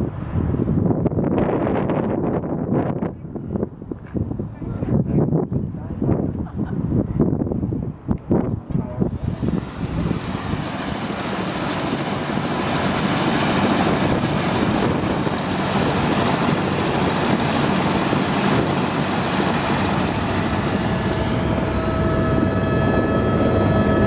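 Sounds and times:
helicopter engine and rotor: 9.0s - 24.0s.

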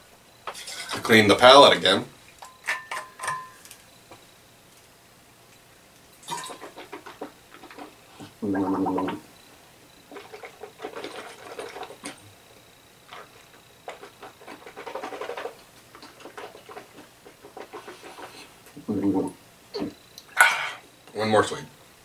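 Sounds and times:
man gargling water: 8.2s - 9.3s, 18.8s - 20.0s.

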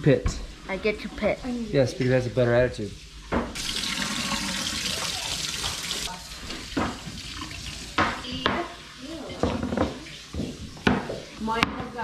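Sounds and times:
tap water running into sink: 3.3s - 8.7s.

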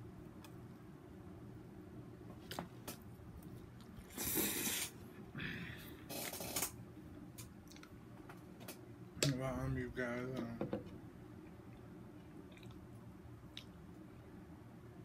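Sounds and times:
man eating: 3.4s - 6.8s, 7.5s - 8.0s, 11.4s - 13.8s
hissing bursts of breath: 4.1s - 6.6s.

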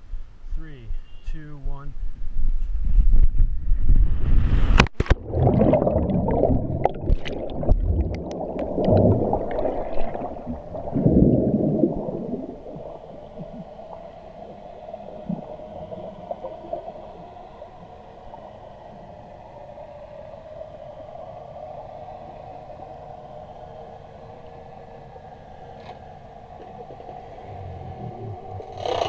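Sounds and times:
underwater hum: 1.9s - 29.0s
wind rushing past camera: 2.0s - 16.9s
underwater bubbling and gurgling: 3.1s - 29.0s.

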